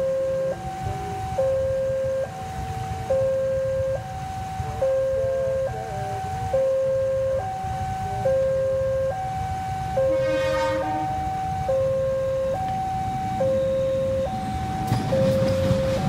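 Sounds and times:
locomotive and train rumbling: 0.0s - 16.0s
two-tone warning alarm: 0.0s - 16.0s.

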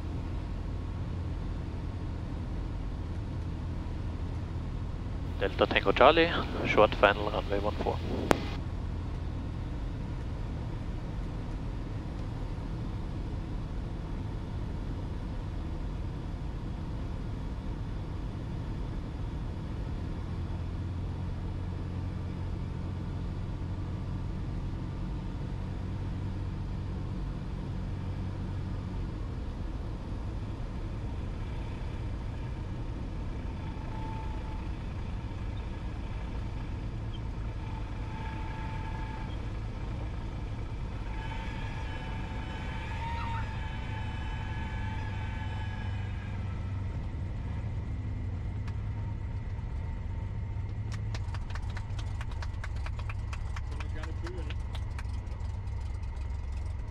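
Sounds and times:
aircraft engine drone in cabin: 0.0s - 56.9s
faint steady tone: 20.0s - 50.9s.

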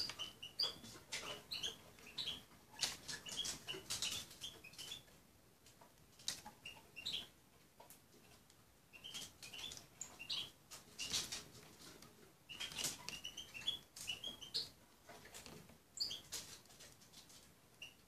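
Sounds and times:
small birds chirping: 0.0s - 5.2s, 5.8s - 18.0s.

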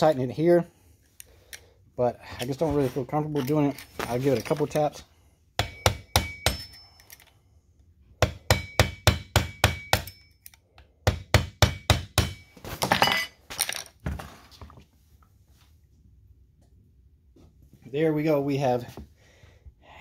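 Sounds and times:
hammer tapping metal: 5.6s - 7.0s, 8.2s - 12.5s.

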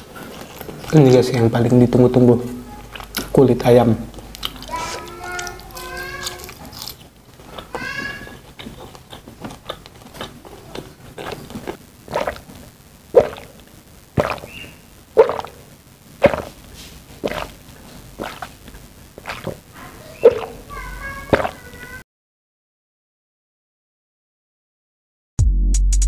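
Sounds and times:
wet mouth clicks: 2.8s - 3.4s, 4.1s - 6.5s, 8.3s - 12.5s, 13.2s - 13.6s, 14.2s - 15.6s, 16.2s - 16.6s, 17.2s - 17.6s, 18.2s - 19.6s, 20.2s - 20.6s, 21.3s - 21.6s
chewing crispy chicken skin: 4.2s - 12.4s, 17.2s - 17.5s, 18.2s - 18.5s, 19.2s - 19.6s
gulping water: 7.6s - 16.6s, 17.2s - 21.9s.

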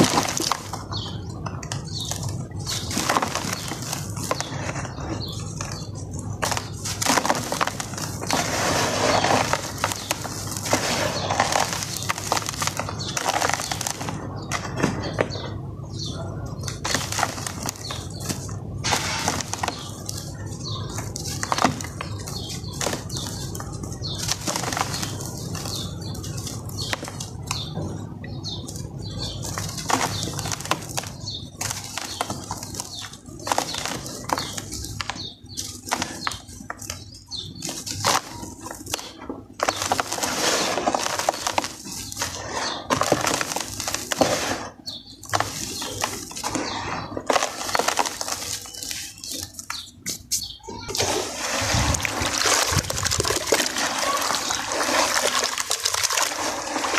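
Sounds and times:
cement chunks crunching: 0.0s - 56.9s
sand pouring into plastic tub: 8.3s - 12.7s, 39.7s - 44.7s, 50.9s - 56.9s
powder pouring into plastic tub: 50.9s - 56.9s.

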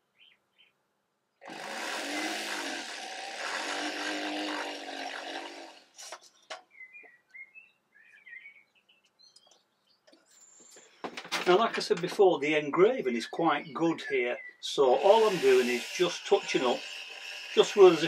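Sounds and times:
small power tool running: 1.4s - 6.2s, 14.9s - 18.0s
birds chirping: 6.0s - 11.0s, 11.6s - 18.0s.

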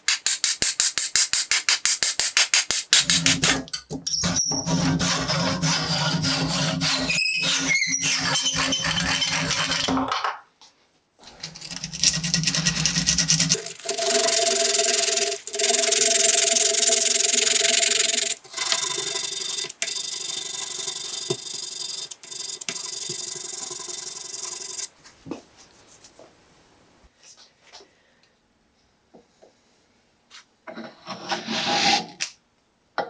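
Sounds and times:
sandpaper rasping on wood: 4.7s - 9.0s.

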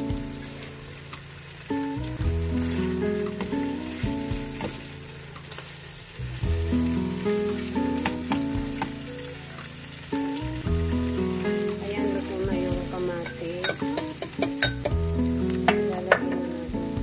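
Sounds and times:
food sizzling in frying pan: 0.0s - 17.0s
background music with bass line: 1.7s - 5.3s, 6.2s - 17.0s
spatula clicking on pan: 13.3s - 15.0s.

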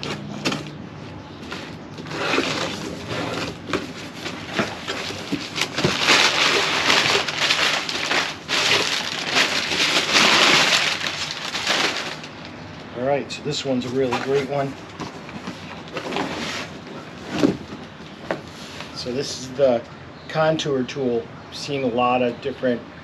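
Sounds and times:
packing paper crinkling and rustling: 1.4s - 12.6s, 13.8s - 19.1s.

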